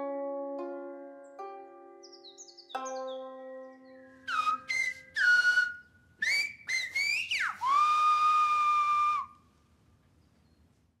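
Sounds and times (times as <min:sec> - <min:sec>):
whistled sliding notes: 0:04.0 - 0:09.4.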